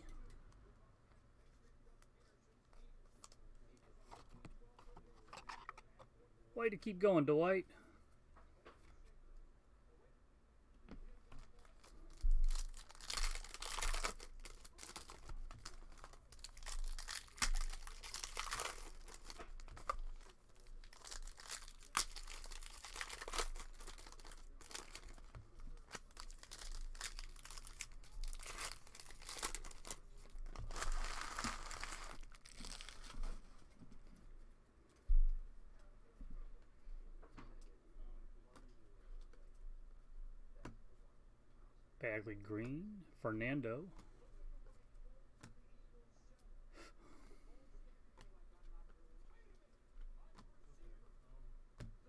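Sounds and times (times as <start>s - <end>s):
foil wrappers tearing and crinkling: 11.5s - 33.4s.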